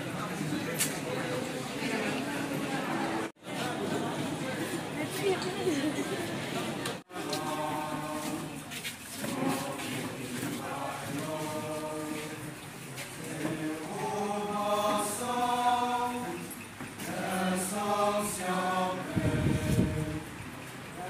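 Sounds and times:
group of voices singing in unison: 7.0 - 20.5.

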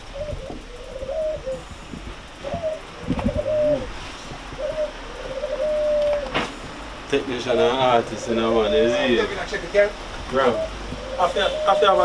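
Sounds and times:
low thumps: 0.0 - 8.3
dove cooing: 0.0 - 12.0.

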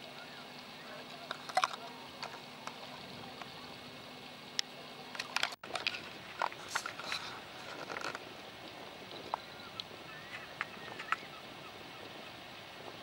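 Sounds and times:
background hiss: 0.0 - 13.0
short bird calls: 9.2 - 12.4.

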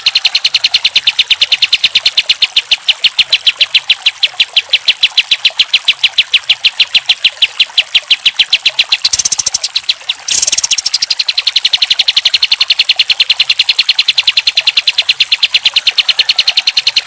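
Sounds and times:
bird singing rapid trill: 0.0 - 17.0.

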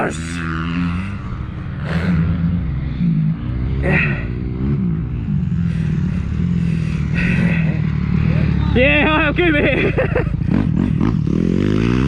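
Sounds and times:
motocross bike engine idling: 5.1 - 11.1.

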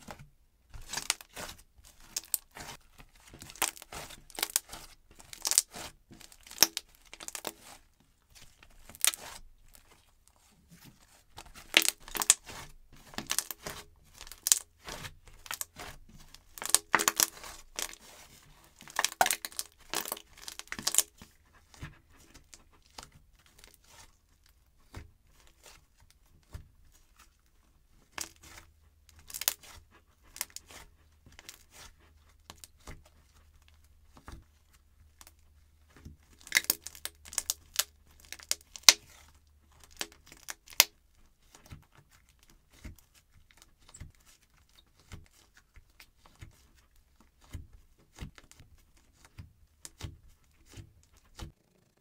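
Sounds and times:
slime crackling and popping: 0.8 - 7.8, 8.8 - 9.9, 11.4 - 21.2, 29.2 - 30.8, 36.3 - 39.2, 39.8 - 41.0.

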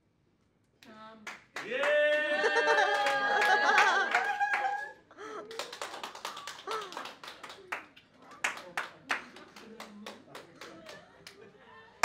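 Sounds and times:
people cheering: 1.6 - 7.8
people laughing: 2.2 - 5.7, 10.5 - 12.0
scattered claps: 5.5 - 11.4.

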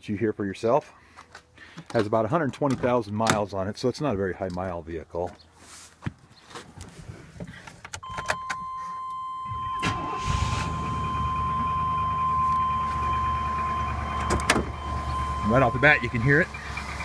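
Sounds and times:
steady high tone: 8.0 - 17.0
engine cranking: 9.5 - 11.9, 12.5 - 17.0.

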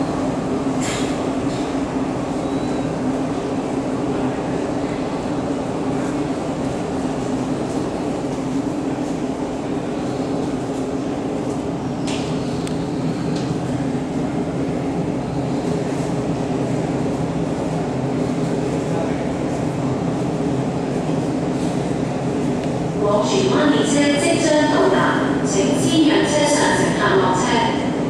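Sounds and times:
train rumbling through station: 0.0 - 28.0.

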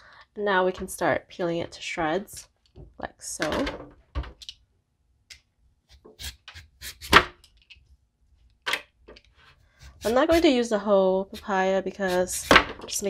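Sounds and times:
peeler scraping papaya: 9.8 - 10.6, 11.3 - 12.6.

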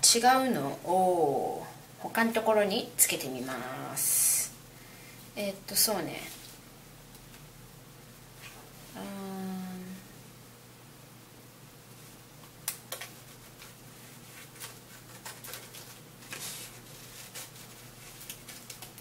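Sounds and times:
paper rustling: 12.9 - 19.0.

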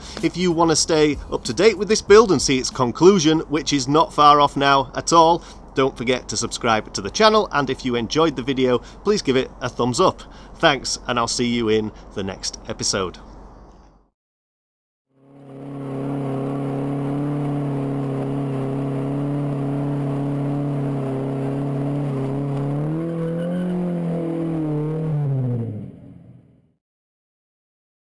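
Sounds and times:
car engine at high revs: 15.2 - 26.5.

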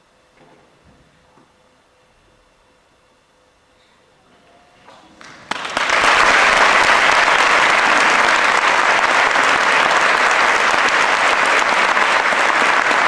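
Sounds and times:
large audience applauding: 5.2 - 13.0.

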